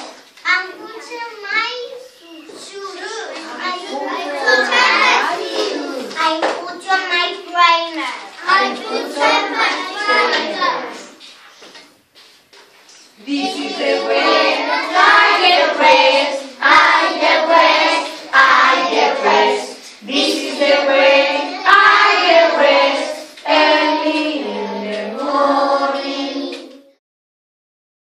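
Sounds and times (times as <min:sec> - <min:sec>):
children singing in chorus: 0:03.9 - 0:06.1, 0:08.4 - 0:11.2, 0:13.2 - 0:27.0.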